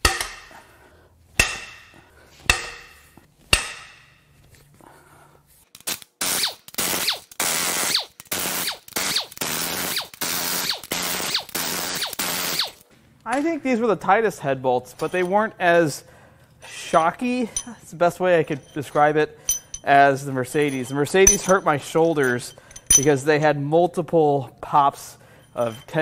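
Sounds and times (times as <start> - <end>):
ringing metal clanks: 0.0 - 0.6, 18.4 - 23.2, 25.2 - 26.0.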